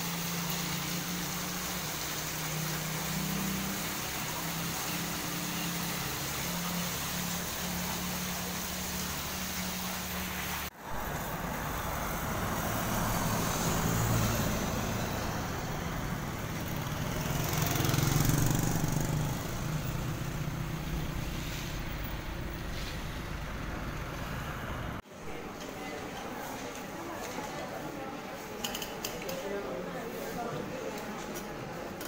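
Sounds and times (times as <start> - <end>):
fountain water splashing: 0.0 - 22.0
pump hum: 0.0 - 22.5
motorcycles and trucks passing: 0.0 - 25.0
road noise: 0.0 - 32.0.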